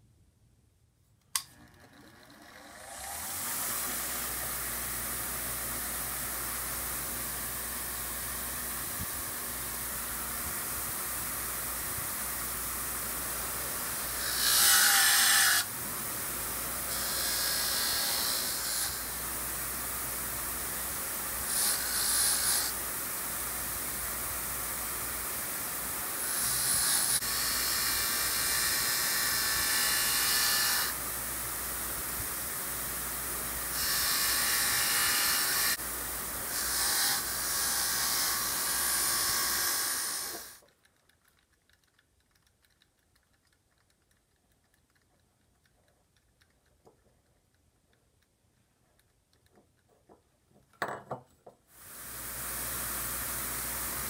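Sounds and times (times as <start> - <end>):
bench grinder running: 1.6 - 8.9, 26.2 - 31.0, 33.5 - 40.6
metal part hissing on grinder wheel: 14.0 - 15.7, 16.8 - 19.3, 21.4 - 22.8, 26.2 - 31.0, 33.6 - 40.6.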